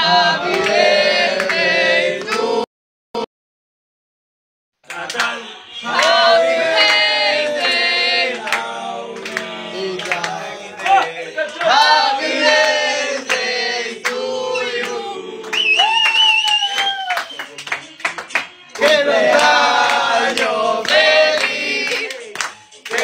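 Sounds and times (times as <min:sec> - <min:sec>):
group of young men singing: 0:00.0 - 0:02.7, 0:04.9 - 0:15.6, 0:18.7 - 0:23.0.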